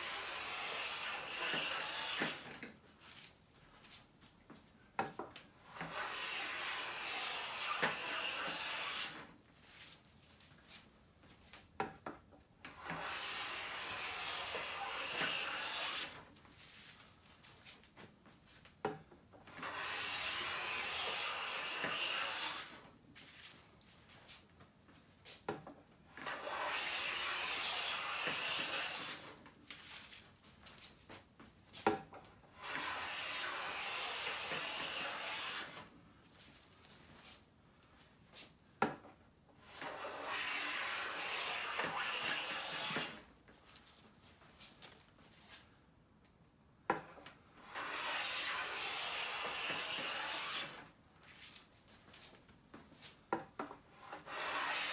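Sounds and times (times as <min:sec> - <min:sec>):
hand plane cutting wood: 0:00.0 - 0:02.6, 0:05.7 - 0:09.3, 0:12.7 - 0:16.3, 0:19.5 - 0:22.8, 0:26.2 - 0:29.4, 0:32.5 - 0:35.9, 0:39.6 - 0:43.3, 0:47.0 - 0:50.9, 0:53.9 - 0:54.9.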